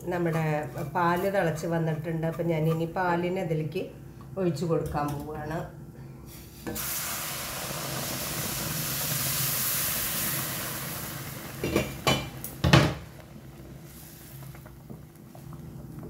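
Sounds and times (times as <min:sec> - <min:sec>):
soft bubbling hiss: 0:06.2 - 0:16.0
liquid hissing in hot pan: 0:06.3 - 0:14.8.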